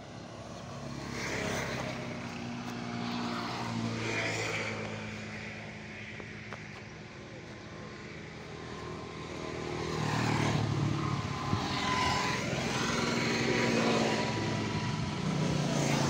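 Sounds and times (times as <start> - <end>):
vehicle engine passing: 8.2 - 16.0.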